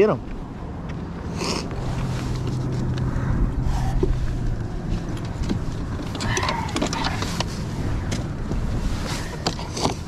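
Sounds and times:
steady low rumble: 0.2 - 9.4
trolling motor clunking and rattling: 4.0 - 10.0.

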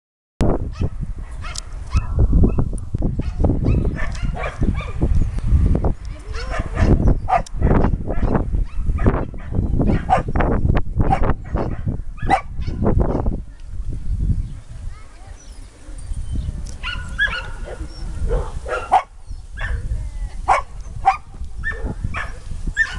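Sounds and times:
dog barking: 0.7 - 2.6, 3.2 - 5.0, 6.3 - 10.3, 11.1 - 13.3, 16.8 - 19.9, 20.5 - 22.9.

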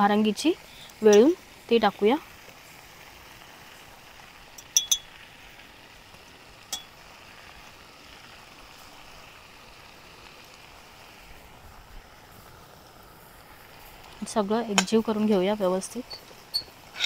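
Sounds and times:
food sizzling in a frying pan: 0.0 - 17.0
sharp metal clink: 4.8 - 5.0.

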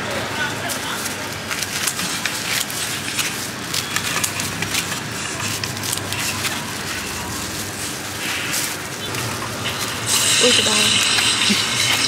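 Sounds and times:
street noise: 0.0 - 12.0
gloved hands handling food: 0.6 - 10.0.

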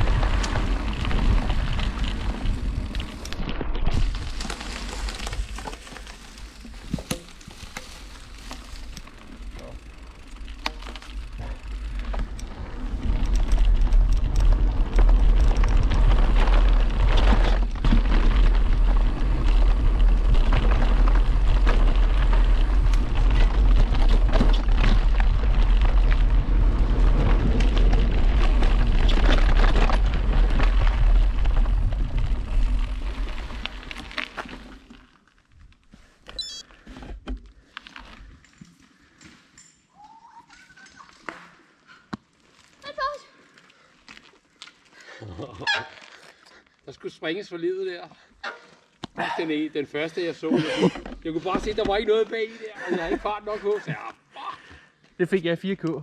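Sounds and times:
bike rattling and knocking: 0.0 - 34.4, 50.8 - 53.4
tyres crunching on dirt trail: 0.0 - 39.6, 41.0 - 56.0.

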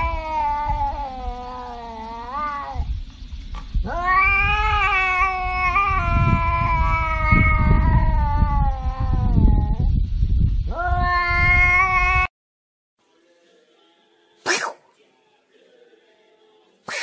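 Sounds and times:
cat yowling: 0.0 - 2.9, 3.8 - 9.9, 10.7 - 12.3.

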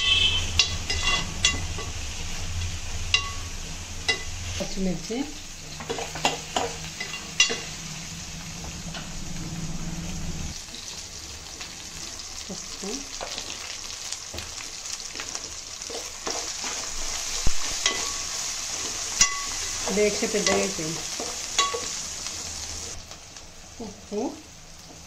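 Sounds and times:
ladle scraping metal pot: 0.0 - 1.9
onions sizzling in oil: 0.0 - 25.0
low hum: 6.6 - 10.6.

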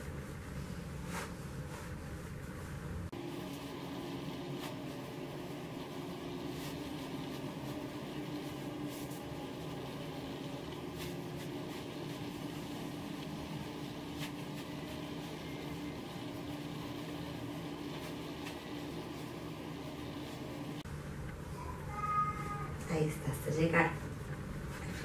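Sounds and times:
room noise hum and hiss: 0.0 - 25.0.

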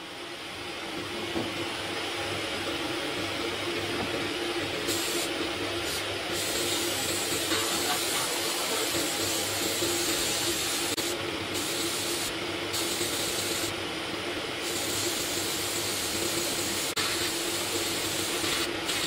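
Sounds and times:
sandblast gun hissing: 4.9 - 13.7, 14.6 - 19.0.

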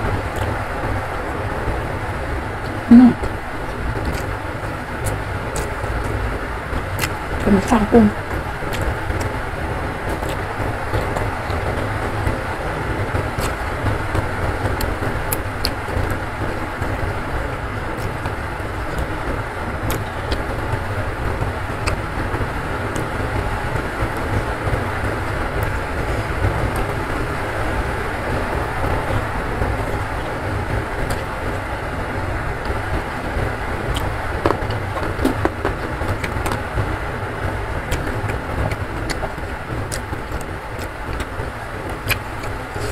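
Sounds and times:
heavy rain: 0.0 - 42.9
chewing clicks: 4.0 - 4.4, 5.0 - 6.2, 7.0 - 7.2, 19.9 - 20.4, 37.9 - 41.3, 42.0 - 42.9.

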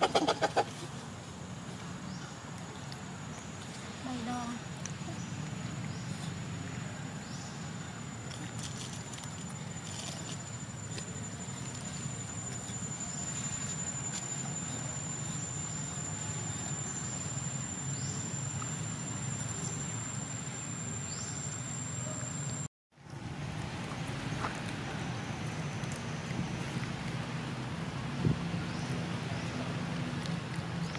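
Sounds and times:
insect high-pitched steady note: 7.4 - 22.7.

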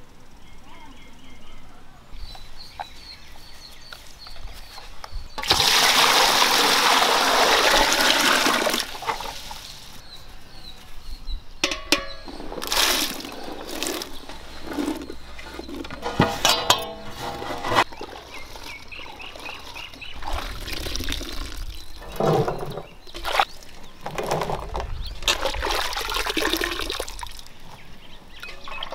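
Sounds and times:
water pouring into metal vessel: 5.4 - 9.5, 25.3 - 27.4
metal knocking on metal: 11.6 - 12.4, 15.8 - 17.8.

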